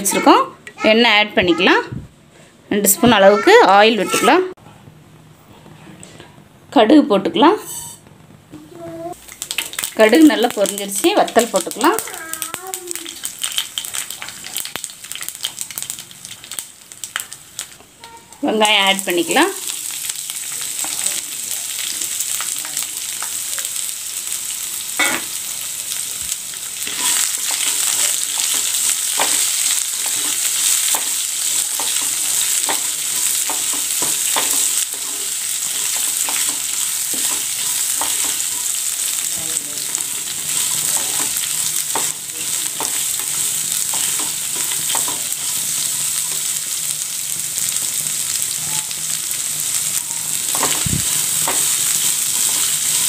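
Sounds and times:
spatula scraping a pan: 0:07.6 - 0:08.0
shallots sizzling in hot oil: 0:09.1 - 0:53.0.

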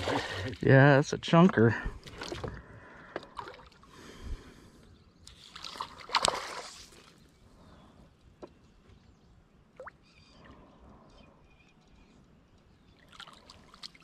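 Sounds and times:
water sloshing: 0:00.0 - 0:00.8, 0:02.0 - 0:03.9, 0:05.3 - 0:07.3
fish splashing at water surface: 0:05.5 - 0:07.1.

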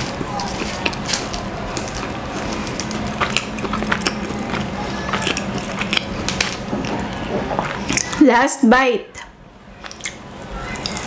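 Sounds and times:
puff pastry crackling: 0:00.0 - 0:08.2.

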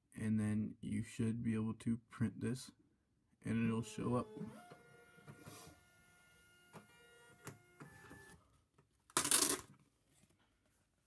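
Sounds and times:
label printer motor whine: 0:03.7 - 0:08.4.

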